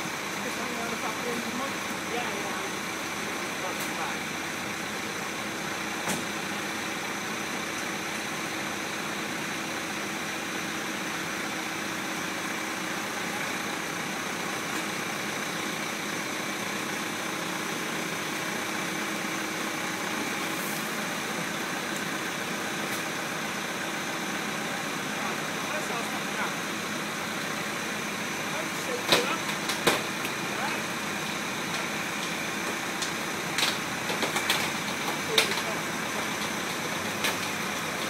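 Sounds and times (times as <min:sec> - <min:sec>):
engine idling with hiss: 0:00.0 - 0:38.0.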